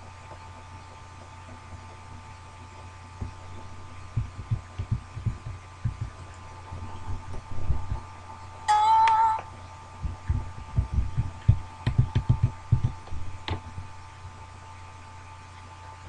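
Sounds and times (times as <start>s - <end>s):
electrical hum: 0.0s - 16.0s
keyboard typing thumps: 4.2s - 6.2s, 10.0s - 13.6s.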